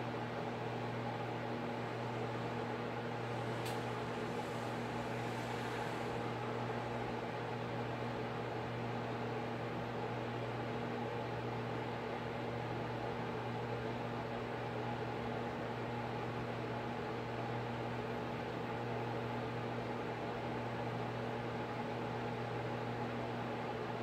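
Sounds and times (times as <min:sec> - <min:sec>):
machine hum with low drone: 0:00.0 - 0:09.4
faint hiss: 0:02.0 - 0:07.3.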